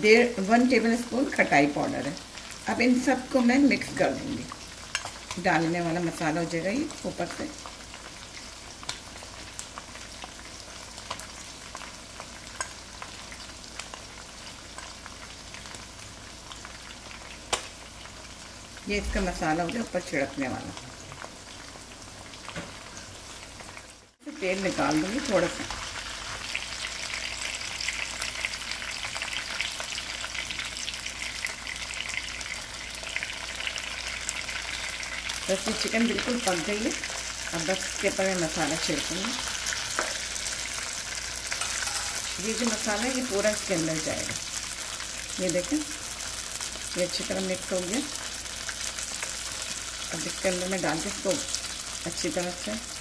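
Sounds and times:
chicken sizzling in oil: 0.0s - 53.0s
metal spoon stirring spices on plate: 41.5s - 42.8s.

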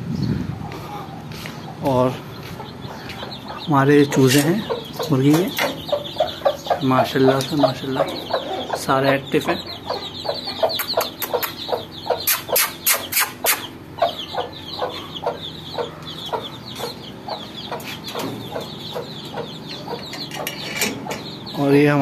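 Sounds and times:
chicks peeping: 0.0s - 22.0s
hen clucking: 0.6s - 22.0s
sharp clicks: 10.7s - 13.7s.

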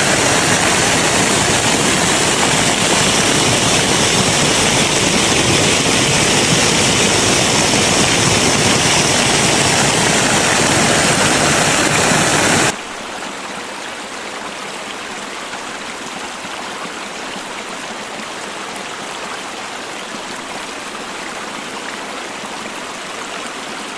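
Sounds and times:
waterfall rushing: 0.0s - 14.3s
water flowing: 0.0s - 23.9s.

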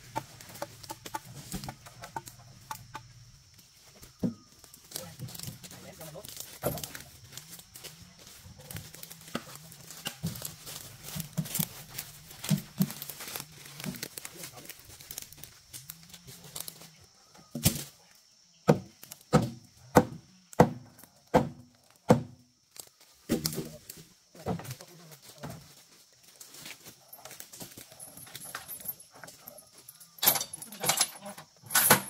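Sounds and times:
logs clunking while stacked: 5.2s - 7.1s, 8.8s - 14.2s, 18.6s - 22.4s, 23.3s - 23.8s, 30.2s - 32.0s
loud sharp wooden strikes: 18.6s - 22.4s.

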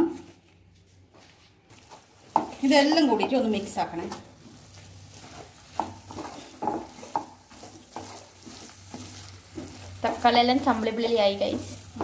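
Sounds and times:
light sizzle: 1.7s - 12.0s
utensil scraping pan: 4.4s - 12.0s.

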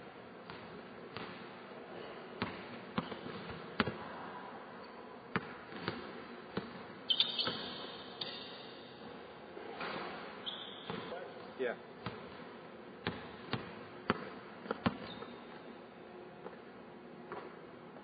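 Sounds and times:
high shoe squeak: 7.1s - 8.8s, 10.4s - 11.2s, 15.0s - 15.6s.

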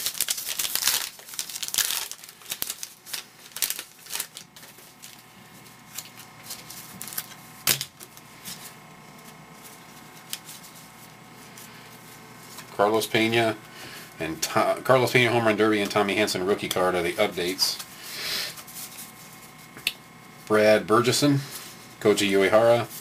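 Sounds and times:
wrapper crinkling and tearing: 0.0s - 8.2s.

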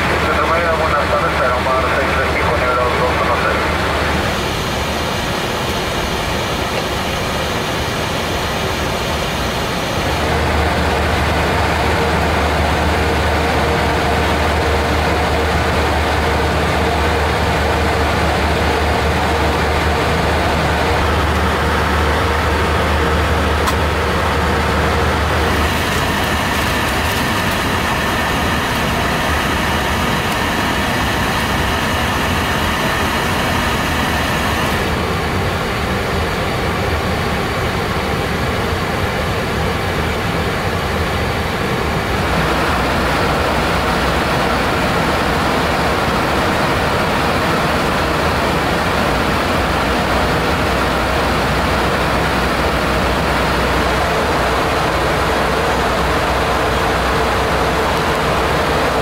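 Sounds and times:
machine hum: 3.6s - 36.2s.

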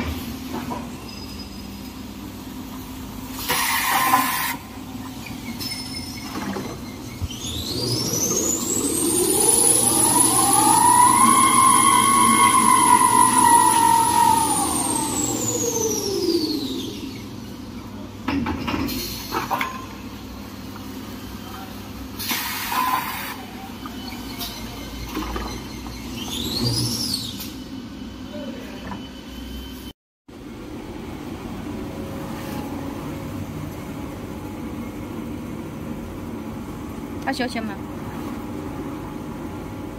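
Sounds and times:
machine humming: 7.9s - 17.2s.

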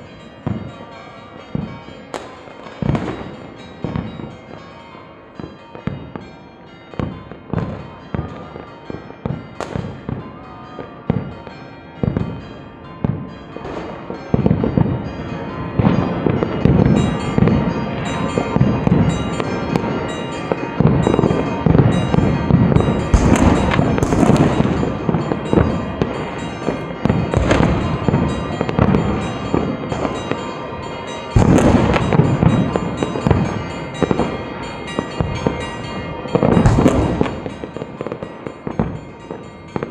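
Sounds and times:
firecracker barrage crackling: 13.0s - 39.9s
firework bangs: 13.0s - 39.9s.

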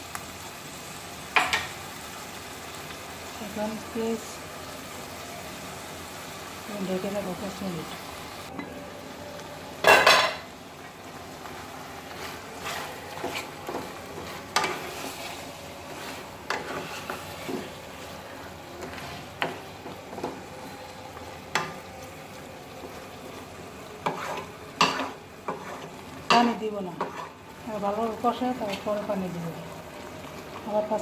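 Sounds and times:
meat sizzling in oil: 0.0s - 31.0s
spatula scraping and knocking pan: 12.0s - 17.9s, 24.0s - 27.4s.

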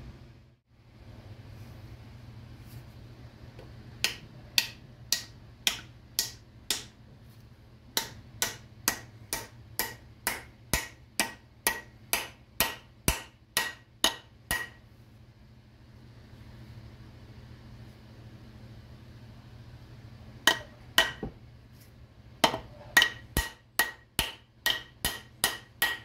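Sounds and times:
hammer striking wooden wedge: 4.0s - 7.0s, 7.9s - 14.8s, 20.5s - 21.4s, 22.4s - 26.0s.

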